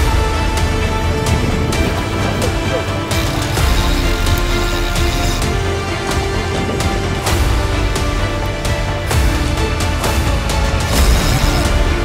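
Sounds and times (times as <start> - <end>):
cinematic music with heavy bass: 0.0 - 12.0.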